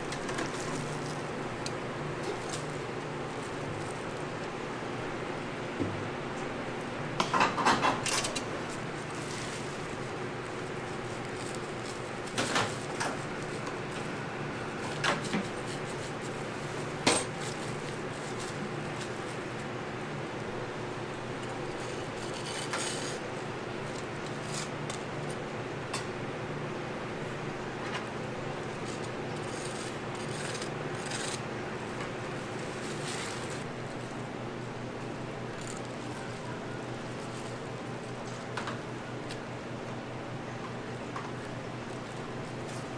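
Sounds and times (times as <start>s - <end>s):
metal utensils clattering on wire rack: 7.3s - 8.4s.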